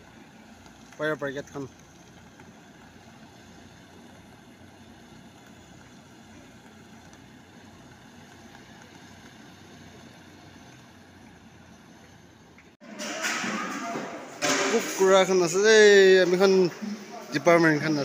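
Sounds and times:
fire engine running: 0.0 - 12.8.

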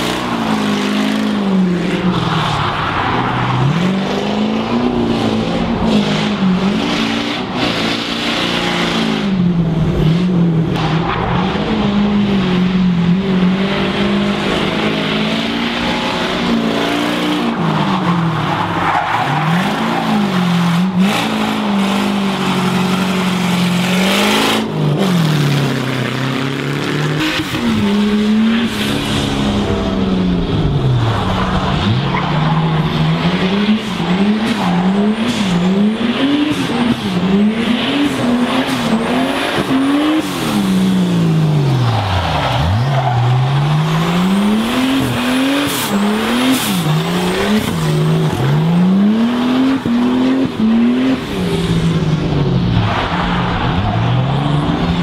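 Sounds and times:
car engine revving hard: 3.5 - 55.0.

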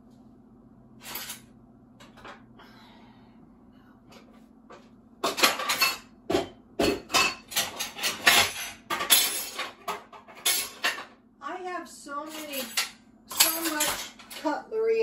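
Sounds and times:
dishes and cutlery clinking: 5.2 - 11.1, 12.3 - 14.5.

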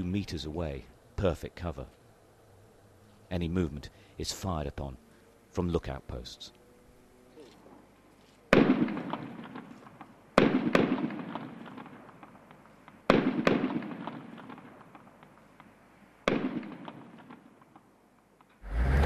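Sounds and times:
gunshots with rolling echo: 8.5 - 18.1.

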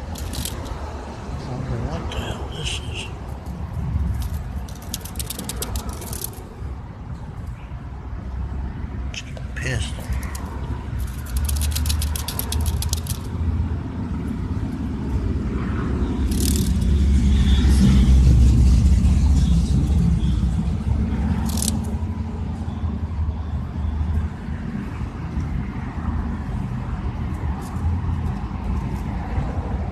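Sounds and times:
cicada clicking buzzing rattle: 0.0 - 1.0, 4.0 - 6.4, 10.1 - 13.5, 16.2 - 17.6, 21.2 - 22.1
low rumble: 13.3 - 22.2.

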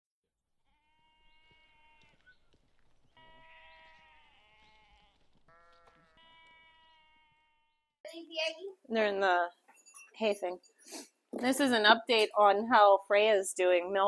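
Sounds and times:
lambs bleating: 0.7 - 7.8.

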